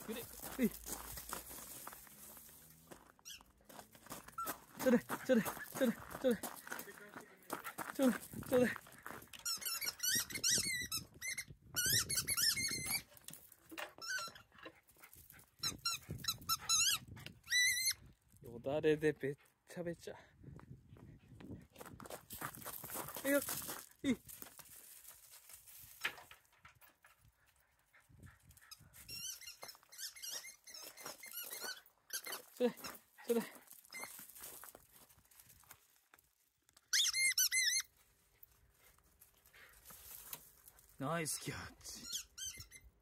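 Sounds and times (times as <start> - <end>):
squeaky rubber ball squeaking: 3.2 - 3.5, 9.4 - 13.1, 14.0 - 14.6, 15.6 - 18.0, 29.0 - 32.6, 33.9 - 34.2, 36.9 - 37.9, 42.0 - 43.0.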